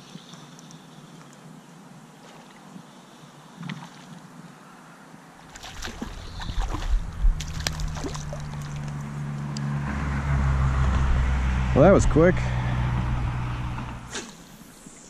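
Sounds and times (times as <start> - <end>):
fish splashing at water surface: 5.5 - 9.1
water sloshing: 5.5 - 9.5
vehicle engine hum: 5.5 - 14.7.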